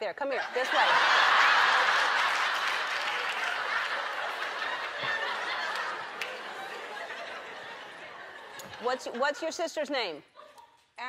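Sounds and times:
studio audience laughing: 0:00.3 - 0:09.6.

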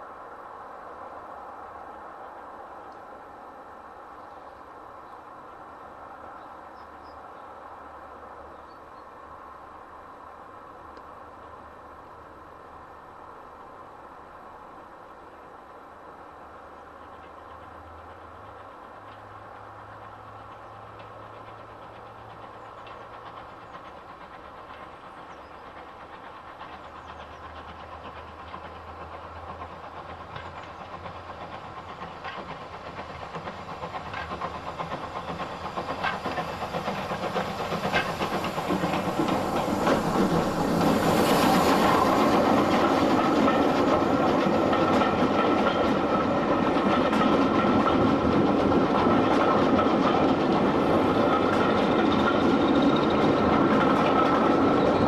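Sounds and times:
steam locomotive passing: 0:00.0 - 0:55.0
wheels clicking over rail joints: 0:17.0 - 0:55.0
loud steam hiss: 0:23.1 - 0:46.8.

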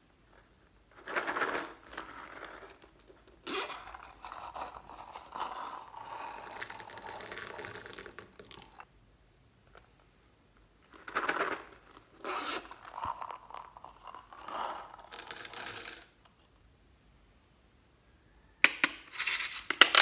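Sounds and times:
crinkly rubbing of purse: 0:01.2 - 0:08.8, 0:11.1 - 0:15.6
zipper opening: 0:03.4 - 0:08.8, 0:11.1 - 0:16.0.

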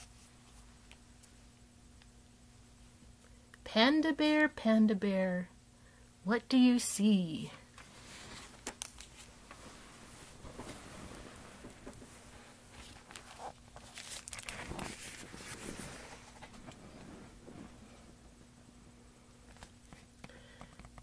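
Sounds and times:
paper rustling: 0:07.8 - 0:17.1.

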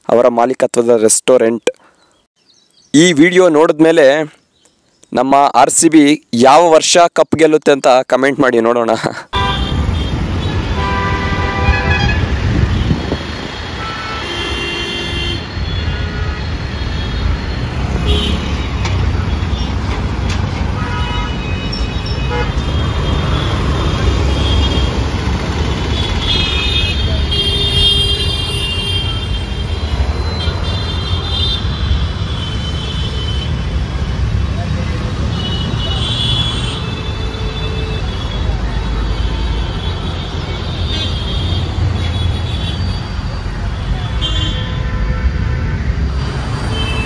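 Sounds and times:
road traffic: 0:00.0 - 0:47.0
vehicle horns tooting: 0:09.3 - 0:19.8, 0:20.7 - 0:33.7, 0:35.1 - 0:47.0.

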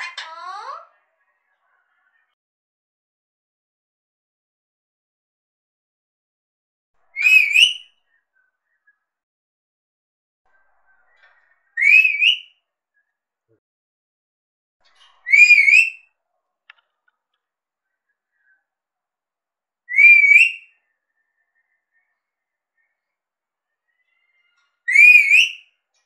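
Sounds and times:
parakeet whistling: 0:07.2 - 0:07.8, 0:11.8 - 0:12.5, 0:15.3 - 0:16.0, 0:19.9 - 0:20.8, 0:24.9 - 0:25.6.

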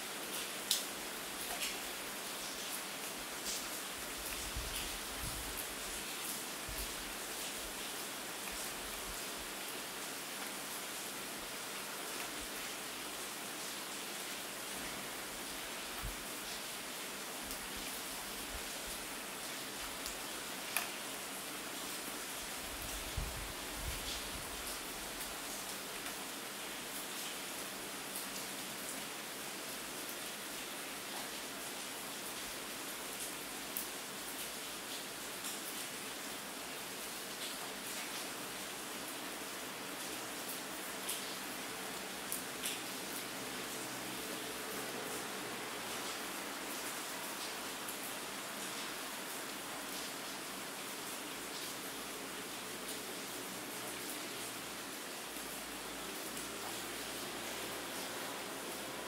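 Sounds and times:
steady rain hiss: 0:00.0 - 0:59.0.

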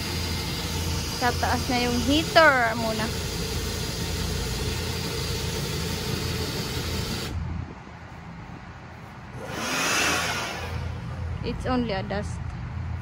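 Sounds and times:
cordless drill running: 0:00.0 - 0:07.4, 0:09.4 - 0:11.2
low hum: 0:00.0 - 0:13.0
rushing noise: 0:09.0 - 0:11.5.

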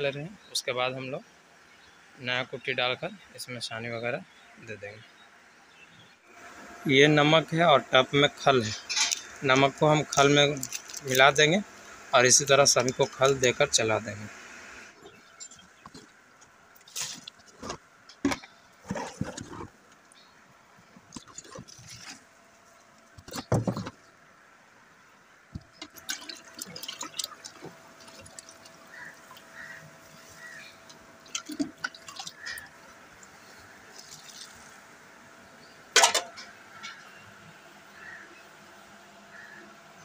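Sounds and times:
watery feed splashing and trickling: 0:21.1 - 0:23.0, 0:25.6 - 0:34.8.

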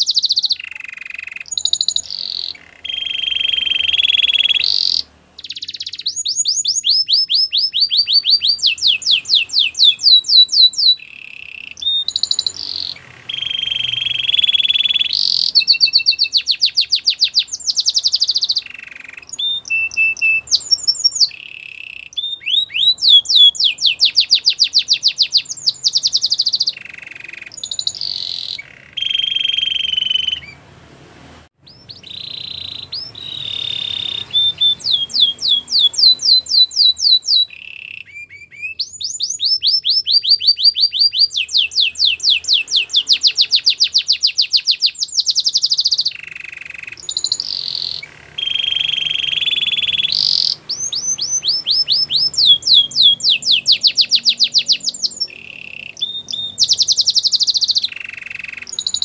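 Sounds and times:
canary singing trills: 0:00.0 - 0:30.8, 0:31.6 - 0:59.0.

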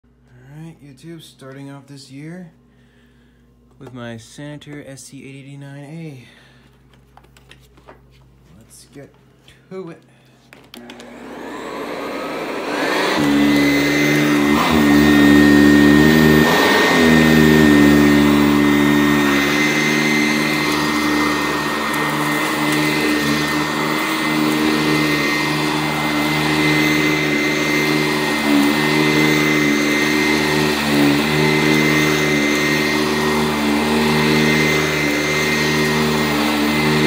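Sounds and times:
upright vacuum running on carpet: 0:10.6 - 0:37.0.

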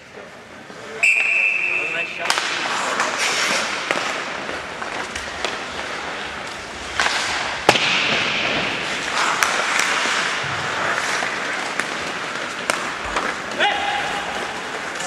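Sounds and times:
hockey sticks striking puck: 0:01.1 - 0:15.0.

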